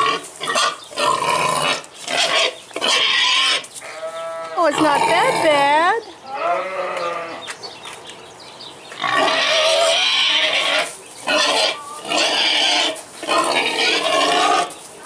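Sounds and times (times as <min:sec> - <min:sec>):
boar calling harshly: 0:00.0 - 0:05.7, 0:09.0 - 0:14.8.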